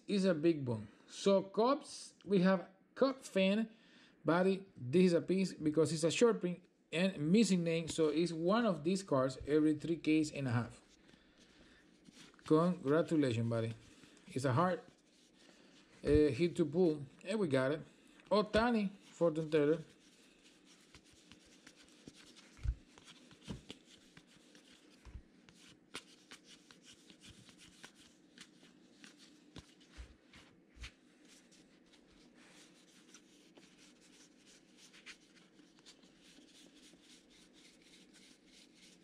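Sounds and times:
trading cards rustling and flicking: 18.3 - 39.0.

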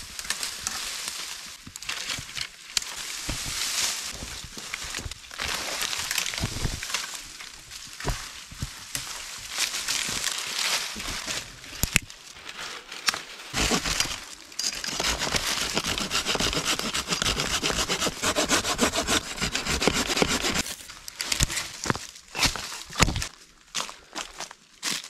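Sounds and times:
saw cutting a dry branch: 13.5 - 21.5, 22.3 - 23.2.

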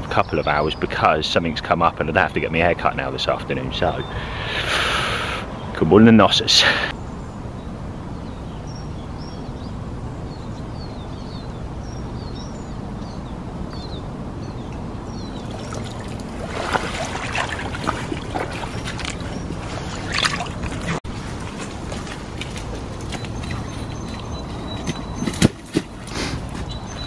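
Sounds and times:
wading splashes: 15.0 - 27.0
water streaming off a net: 15.4 - 22.8.

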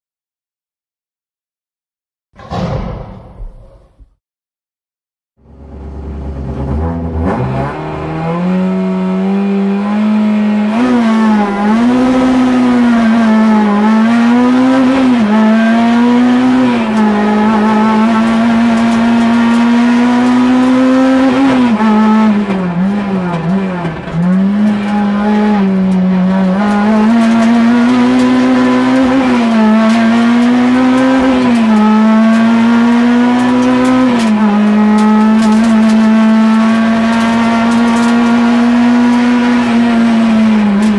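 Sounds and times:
car engine at high revs: 5.4 - 40.9.

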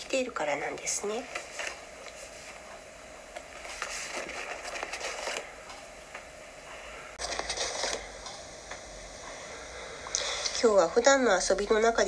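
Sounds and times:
rustling and crackling: 3.4 - 5.9.

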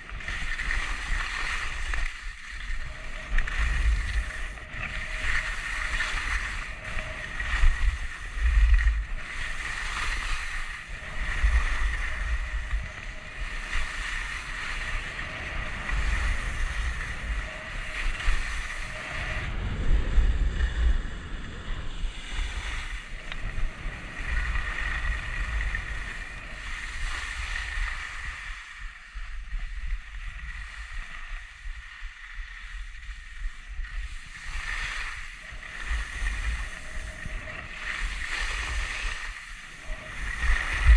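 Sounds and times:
skis scraping over snow: 0.0 - 21.0, 21.7 - 40.9
wind buffeting microphone: 0.0 - 40.9.

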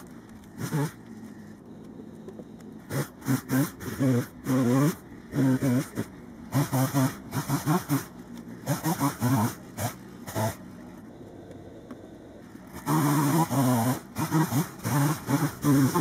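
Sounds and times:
chainsaw revving: 0.0 - 1.0, 2.8 - 10.6, 12.6 - 16.0.

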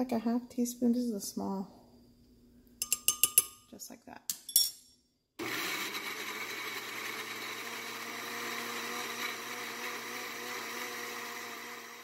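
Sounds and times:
blender running: 5.4 - 12.0.

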